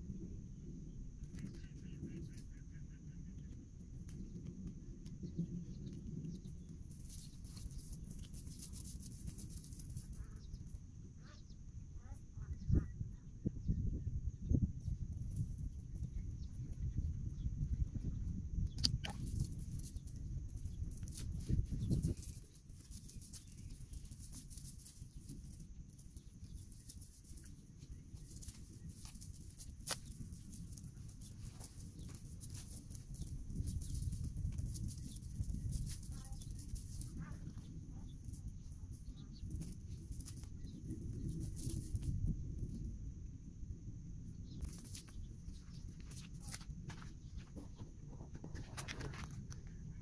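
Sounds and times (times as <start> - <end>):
steady low rumble: 0.0 - 50.0
faint bird calls: 1.3 - 3.6
sharp click: 18.7 - 19.2
net mesh crackling rustle: 20.8 - 42.2.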